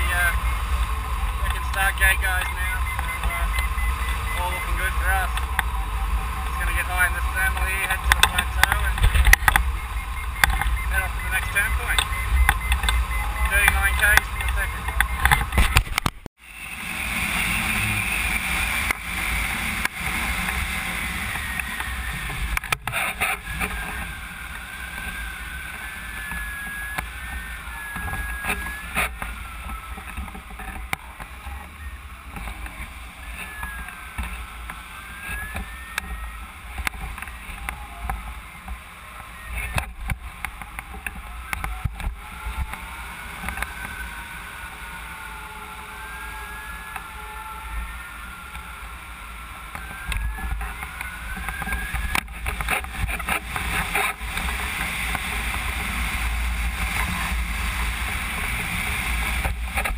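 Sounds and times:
faint whistling tones: 0:00.0 - 0:15.8, 0:21.0 - 0:45.1
wind rushing over camera: 0:00.0 - 0:45.1, 0:46.3 - 0:59.9.

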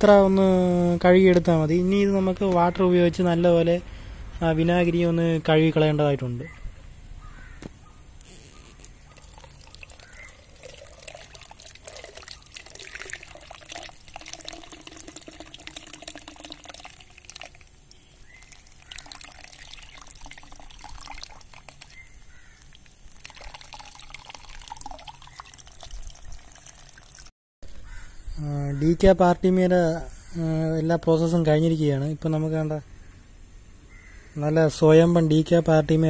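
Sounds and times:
water splashing into a strainer: 0:09.2 - 0:27.3.

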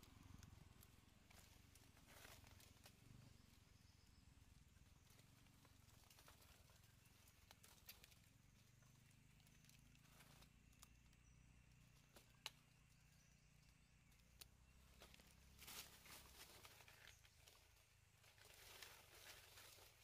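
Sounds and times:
dry leaves crackling: 0:00.0 - 0:11.2, 0:14.3 - 0:20.0
faint low rumble: 0:00.0 - 0:20.0.

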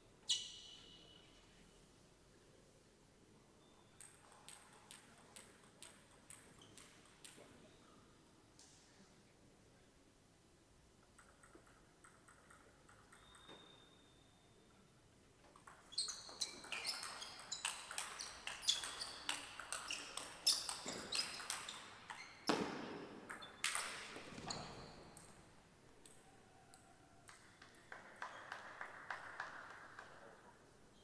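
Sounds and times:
table tennis ball clicking: 0:11.1 - 0:13.8, 0:15.5 - 0:22.2.

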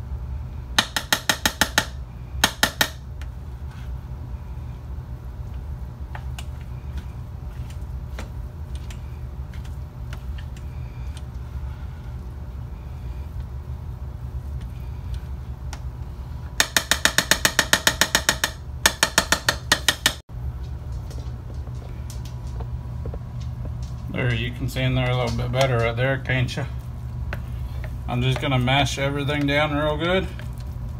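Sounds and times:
steady low hum: 0:00.0 - 0:30.9
metal spoon scraping meat mixture: 0:24.7 - 0:30.7.

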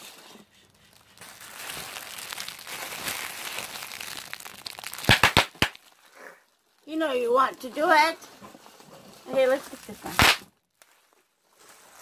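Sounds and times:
bubble wrap crinkling: 0:00.0 - 0:12.0
bubble wrap popping: 0:00.9 - 0:07.9, 0:09.2 - 0:11.2.

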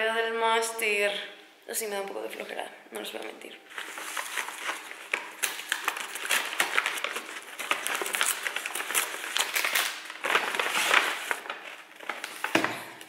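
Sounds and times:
paper bag crinkling: 0:03.7 - 0:13.0.

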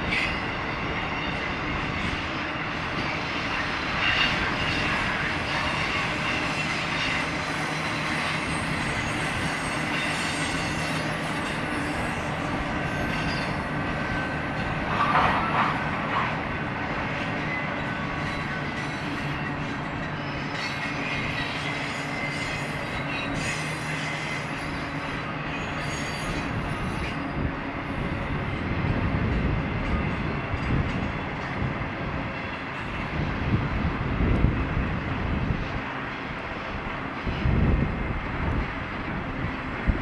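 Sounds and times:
freight train wheels rumbling: 0:00.0 - 0:40.0
thin wheel squeal: 0:05.8 - 0:14.3, 0:17.4 - 0:27.3.

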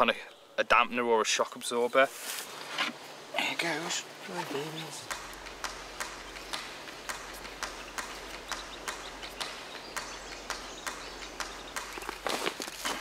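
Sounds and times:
steady low hum: 0:03.0 - 0:13.0
ducklings peeping: 0:04.7 - 0:13.0.

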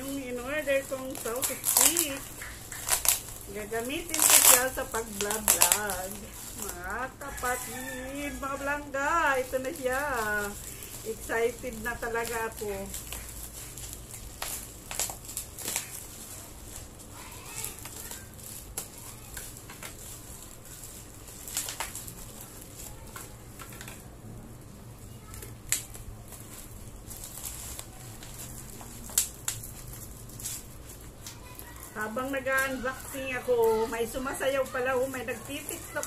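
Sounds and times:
bubble wrap crinkling: 0:00.0 - 0:36.0
scissors snipping: 0:00.9 - 0:06.8.

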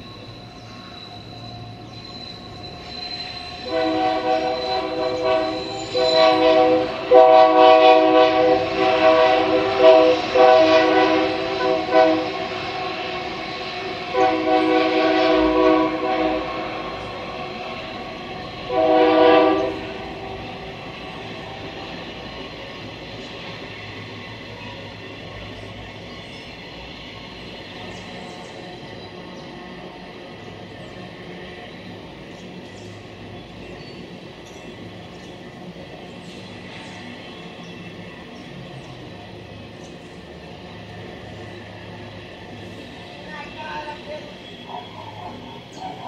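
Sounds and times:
passing train running noise: 0:00.0 - 0:46.0
locomotive air horn blasts: 0:03.6 - 0:13.4, 0:14.0 - 0:17.0, 0:18.7 - 0:20.5.

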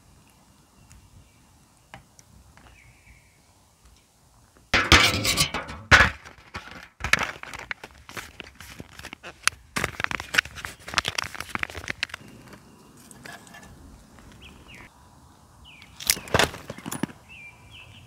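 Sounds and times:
aluminium foil trays crinkling: 0:04.8 - 0:12.6.

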